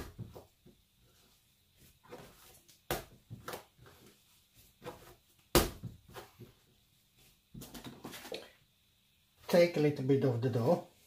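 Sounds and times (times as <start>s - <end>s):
dough slapped onto wooden board: 5.5s - 6.0s.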